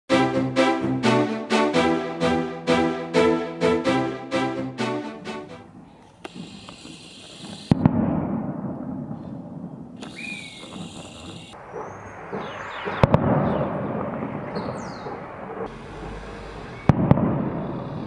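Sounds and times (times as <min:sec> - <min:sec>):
distant rocket bangs: 0:07.7 - 0:09.5, 0:11.6 - 0:15.7, 0:16.8 - 0:17.9.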